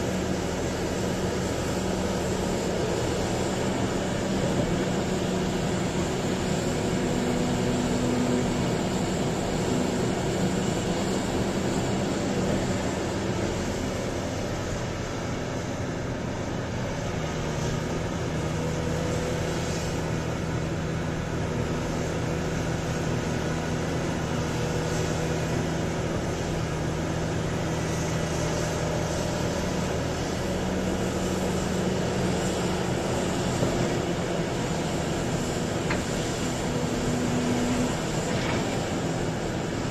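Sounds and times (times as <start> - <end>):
excavator diesel engine running: 0.0 - 39.9.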